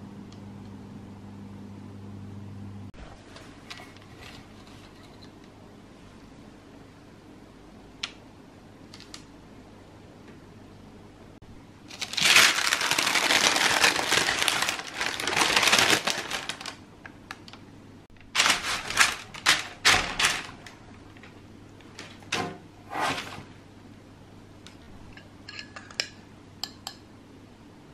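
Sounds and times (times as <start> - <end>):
baking paper crinkling: 11.9 - 17.6, 18.2 - 23.5.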